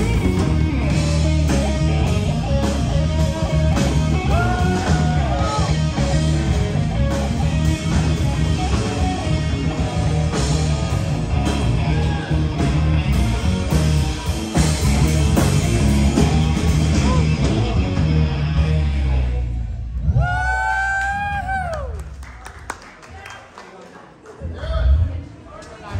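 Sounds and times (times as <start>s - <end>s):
live rock band playing: 0.0s - 19.8s
electric guitar: 0.0s - 20.2s.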